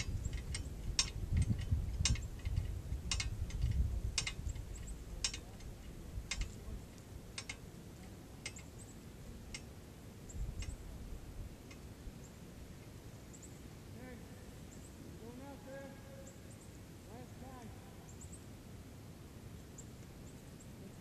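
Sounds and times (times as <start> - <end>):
wind rumble on microphone: 0.0 - 7.5, 10.2 - 12.2
metallic ticks of steel target: 0.0 - 7.7.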